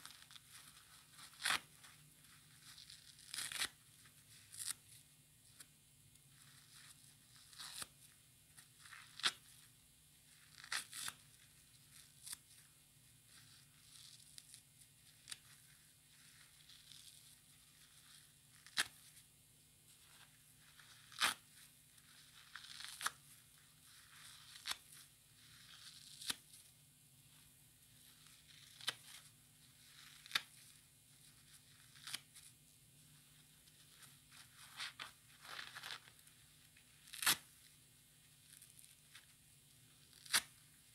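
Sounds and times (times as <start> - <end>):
sponge tearing: 0.0 - 3.8, 7.3 - 7.9, 10.4 - 11.3, 12.0 - 12.4, 13.4 - 19.2, 20.7 - 26.6, 28.2 - 30.8, 37.0 - 37.5, 40.0 - 40.6.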